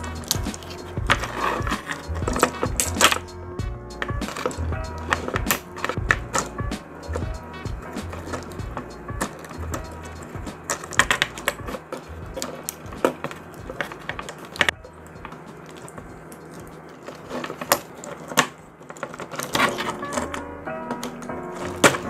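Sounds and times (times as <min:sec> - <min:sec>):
background music: 0:00.0 - 0:22.0
toy parts clicking: 0:04.0 - 0:07.3, 0:08.0 - 0:20.4.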